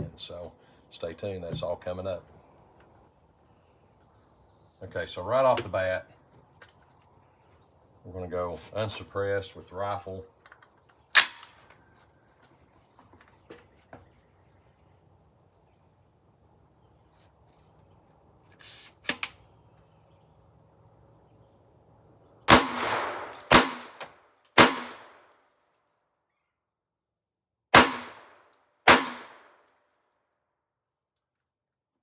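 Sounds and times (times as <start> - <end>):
rifle shots: 22.5 - 25.2, 27.7 - 29.6.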